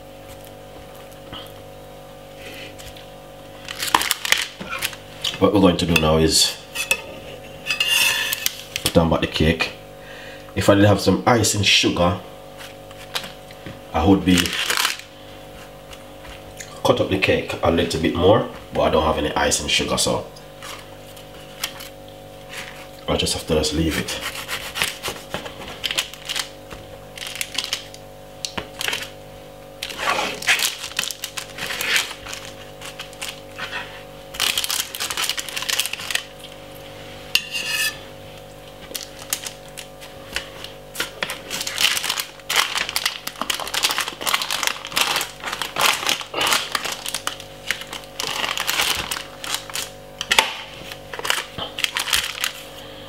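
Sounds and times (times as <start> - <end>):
knife sawing through cake: 24.0 - 25.2.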